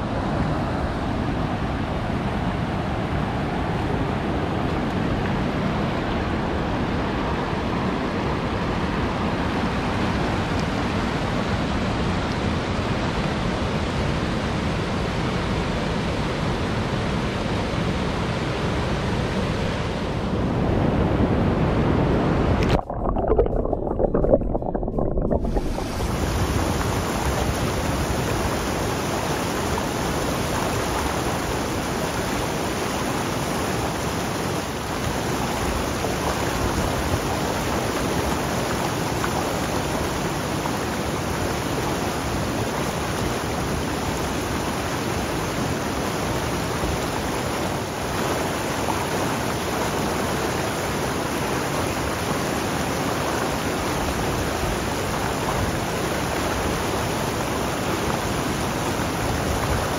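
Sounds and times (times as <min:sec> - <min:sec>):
river flowing over rocks: 0:22.7 - 0:59.9.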